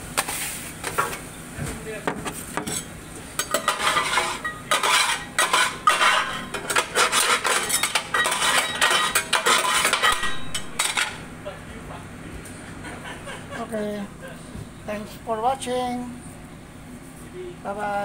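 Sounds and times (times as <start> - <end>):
metal spatula scraping griddle: 2.7 - 11.2.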